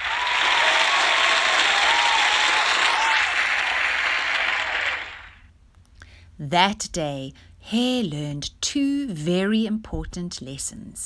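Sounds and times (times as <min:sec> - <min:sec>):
crowd applauding and cheering: 0:00.0 - 0:05.5.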